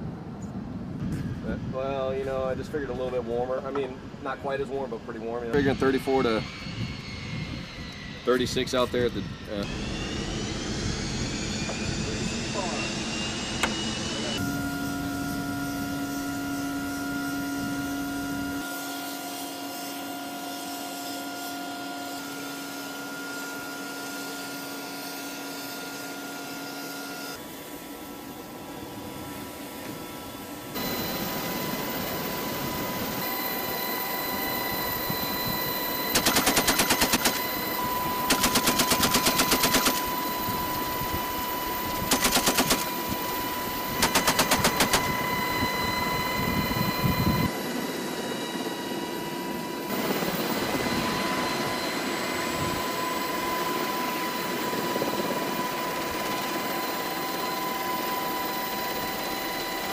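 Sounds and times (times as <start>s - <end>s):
helicopter engine whine: 0.0s - 59.9s
machine gun bursts: 36.1s - 37.4s, 38.3s - 40.1s, 42.0s - 42.9s, 44.0s - 45.1s.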